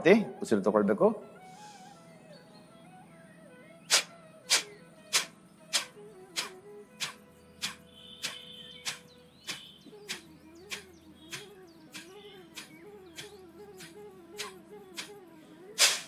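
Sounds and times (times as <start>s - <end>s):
forceful nasal exhalations: 1.4s - 2.2s, 3.9s - 10.2s, 15.8s - 16.0s.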